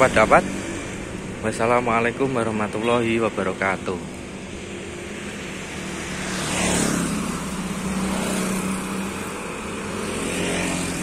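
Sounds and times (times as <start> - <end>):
steady engine hum: 0.0 - 11.0
vehicle passing: 0.0 - 11.0.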